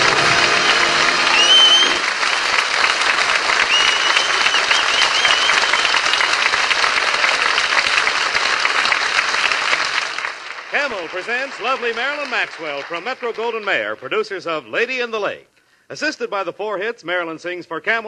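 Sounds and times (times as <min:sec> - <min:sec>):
music: 0:00.0 - 0:02.0
audience applauding: 0:00.0 - 0:14.0
wavering high whistle: 0:00.2 - 0:02.0, 0:03.7 - 0:06.1.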